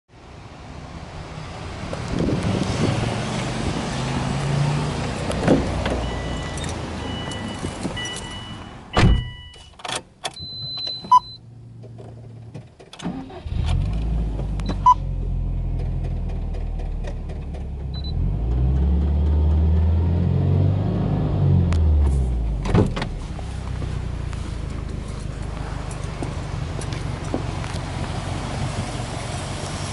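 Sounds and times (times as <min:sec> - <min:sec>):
car engine starting and idling: 0:00.4 - 0:29.9
car door thumping shut: 0:09.0 - 0:09.4, 0:22.6 - 0:23.2.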